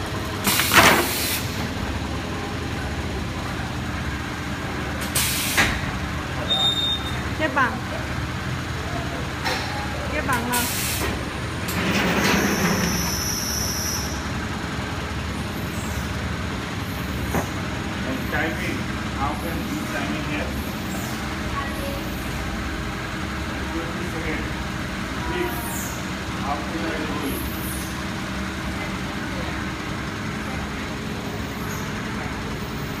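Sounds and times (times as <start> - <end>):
factory machinery humming: 0.0 - 33.0.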